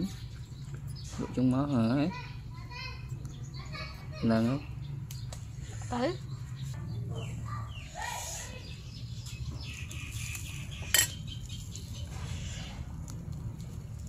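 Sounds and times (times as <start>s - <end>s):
spoon clinking against bowl: 10.9s - 11.2s.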